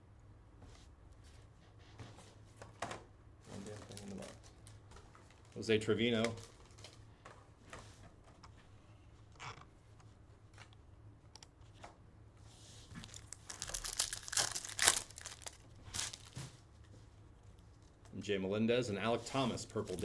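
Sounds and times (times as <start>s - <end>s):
foil wrapper crinkling and tearing: 3.6s - 4.8s, 13.0s - 16.5s, 19.6s - 20.0s.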